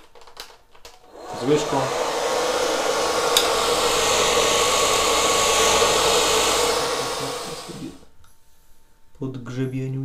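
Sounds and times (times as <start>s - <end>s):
hair dryer blowing: 1.0s - 8.1s.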